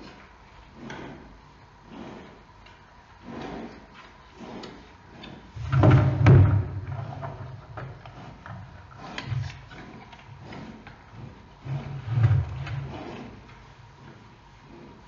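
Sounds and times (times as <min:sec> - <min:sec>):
animals tussling against wall: 0:05.3 - 0:13.5.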